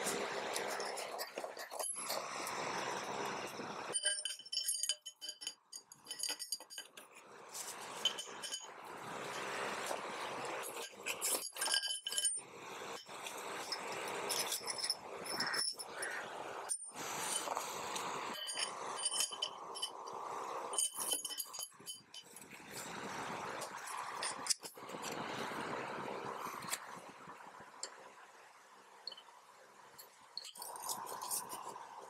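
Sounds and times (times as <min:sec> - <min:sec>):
metal parts clinking: 0:00.0 - 0:08.8, 0:09.4 - 0:12.4, 0:13.0 - 0:22.5, 0:23.7 - 0:25.2, 0:30.4 - 0:31.7.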